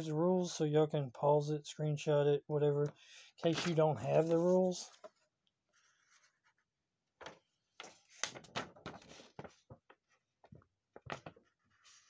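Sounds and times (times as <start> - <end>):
paper rustling: 3.4 - 6.6, 7.2 - 12.0.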